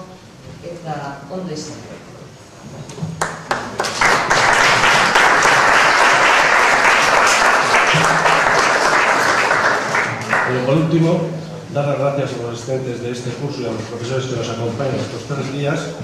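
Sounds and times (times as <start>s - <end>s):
audience applauding: 3.2s - 10.8s.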